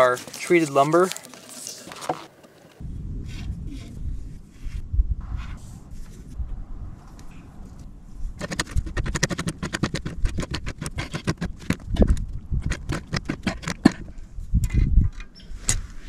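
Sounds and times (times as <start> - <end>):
metal clicks and scrapes: 8.4 - 16.0.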